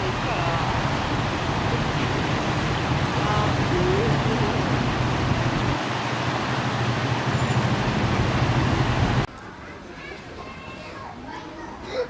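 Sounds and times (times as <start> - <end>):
fountain splashing into pond: 0.0 - 9.3
low steady hum: 0.0 - 9.3.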